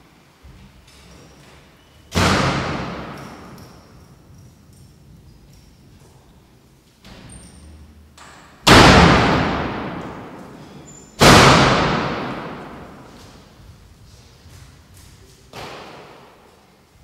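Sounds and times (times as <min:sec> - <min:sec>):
loud sharp bangs echoing: 0:02.1 - 0:03.8, 0:08.6 - 0:13.5.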